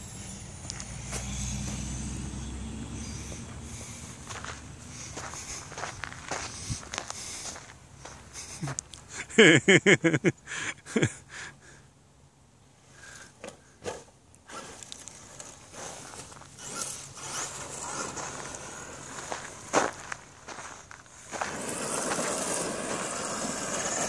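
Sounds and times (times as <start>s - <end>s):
remote control truck whine: 0.0s - 7.6s, 13.0s - 20.2s, 21.2s - 24.0s
footsteps on gravel: 3.0s - 8.9s, 14.7s - 23.7s
person laughing: 8.3s - 11.8s.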